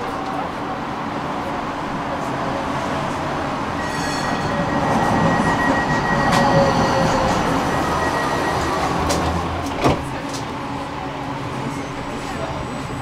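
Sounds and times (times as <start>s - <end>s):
tram rolling rumble: 0.0s - 13.0s
high-pitched wheel squeal: 3.8s - 8.9s.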